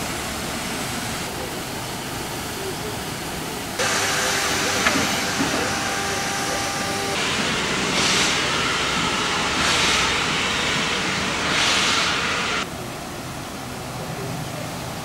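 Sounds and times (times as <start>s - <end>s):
steam hissing: 0.0s - 13.0s
steam locomotive exhaust chuffs: 3.8s - 12.7s.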